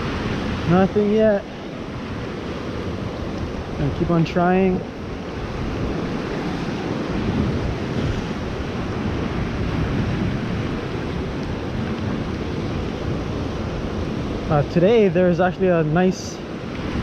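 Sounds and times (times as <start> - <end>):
surf washing over rocks: 0.0 - 17.0
wind buffeting microphone: 0.0 - 17.0.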